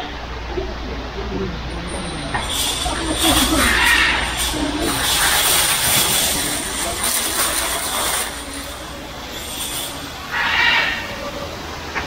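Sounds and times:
chain curtain rattling: 1.9 - 10.4.

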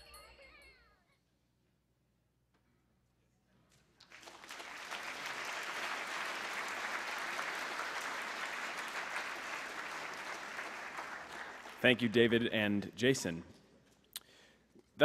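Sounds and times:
audience applauding: 4.0 - 12.2.

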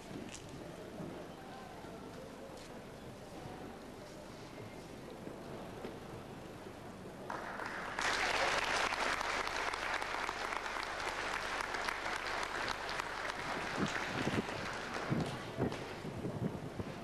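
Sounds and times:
audience applauding: 7.3 - 15.6.

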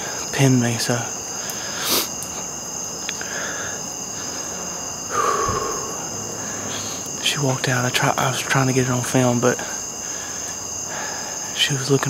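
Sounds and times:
insects chirping: 0.0 - 12.0
person breathing out: 5.1 - 7.1.

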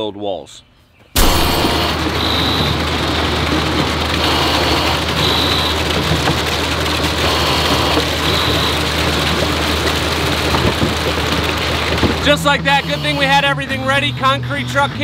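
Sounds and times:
wet concrete pouring: 1.3 - 13.2.

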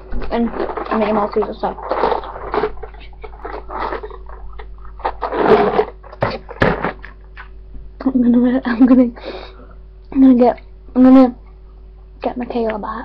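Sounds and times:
close-up chewing: 1.8 - 6.2.

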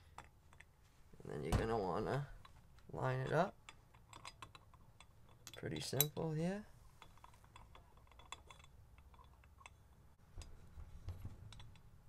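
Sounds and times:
small metal clicks and ticks: 3.7 - 6.3, 7.0 - 10.5.

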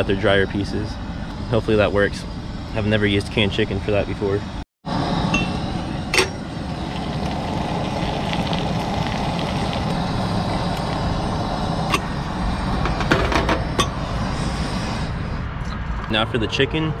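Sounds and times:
steady rushing background noise: 0.0 - 16.7
metal pot lid clinking: 6.2 - 6.4.

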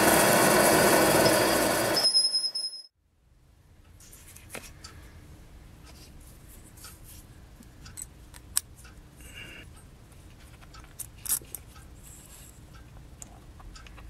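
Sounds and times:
small metal parts clicking: 10.6 - 11.8.

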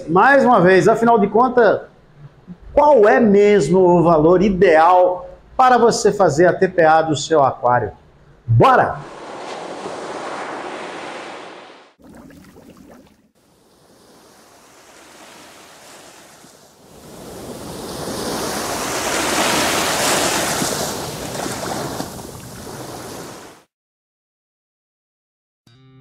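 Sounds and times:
ocean waves: 9.0 - 23.7.

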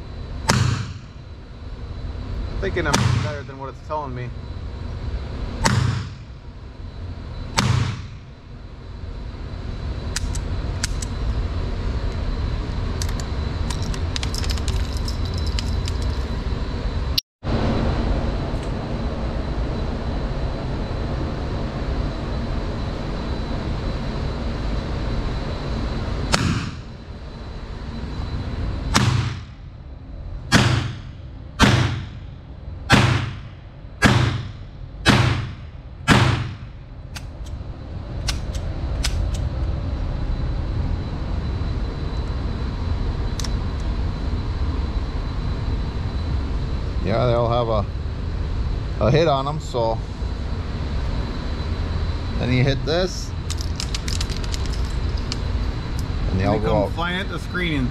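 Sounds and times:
steady low rumble: 0.0 - 57.9
handgun shots cracking indoors: 32.9 - 33.4, 34.0 - 34.4, 35.1 - 37.3.

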